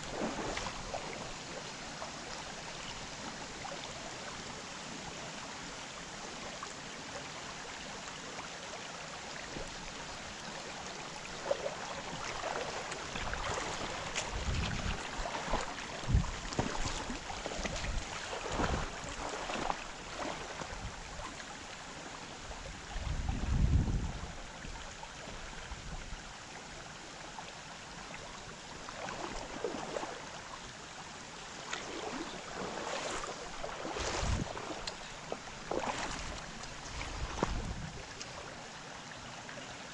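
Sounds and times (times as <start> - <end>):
stream water running: 0.0 - 39.9
low rumbles on microphone: 13.1 - 19.2, 22.6 - 26.2, 33.5 - 34.7, 35.3 - 38.2.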